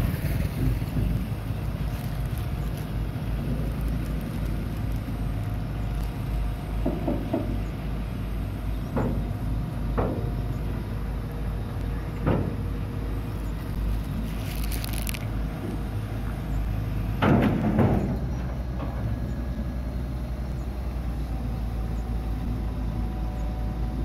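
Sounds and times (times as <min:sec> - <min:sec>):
excavator diesel engine running: 0:00.0 - 0:24.0.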